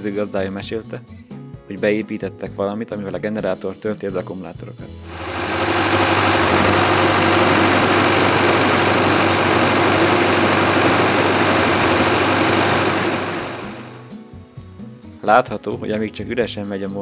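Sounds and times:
corn sheller running empty: 5.1 - 14.1
generator engine running: 5.1 - 14.1
low steady hum: 5.1 - 14.1.

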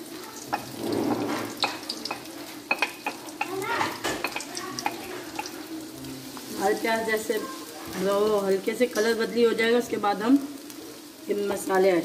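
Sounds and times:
onions sizzling in hot oil: 0.0 - 12.0
utensil knocking against pan: 0.5 - 5.6.

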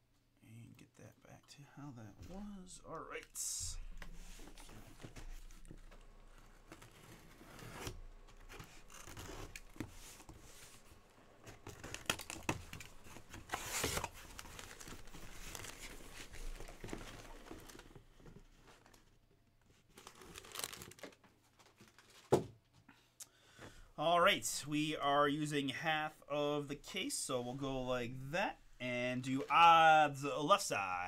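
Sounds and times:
cardboard flaps rustling: 3.7 - 19.1
tape and cardboard tearing: 11.7 - 15.0.

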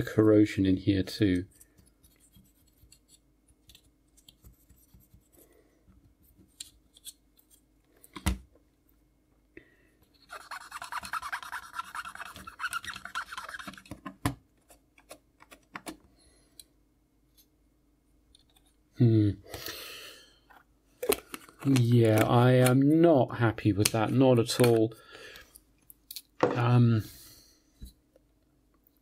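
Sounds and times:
cotton bud scrubbing metal and plastic: 10.2 - 14.8.

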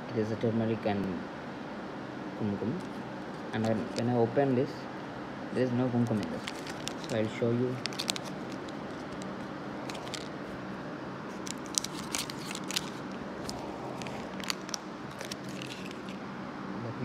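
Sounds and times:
steady low hum: 0.0 - 17.0
foil sachets crinkling: 3.4 - 4.1, 6.0 - 10.6, 11.3 - 16.2.

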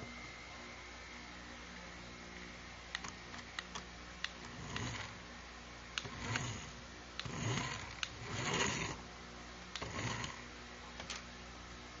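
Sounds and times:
toy car motor whirring: 4.4 - 5.2, 6.0 - 9.0, 9.8 - 10.4.

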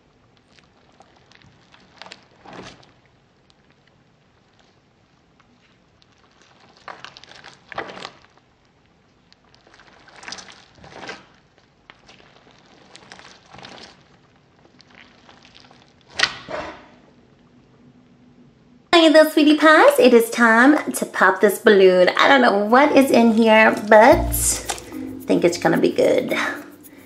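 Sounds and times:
rubber balloon squishing: 0.6 - 3.2, 5.8 - 8.5, 9.4 - 16.6.

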